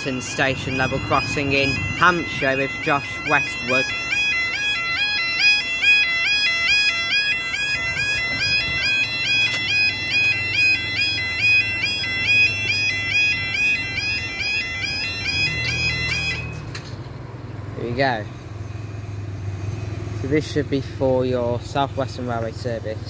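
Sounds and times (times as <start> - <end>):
level crossing two-tone alarm: 0.0 - 16.6.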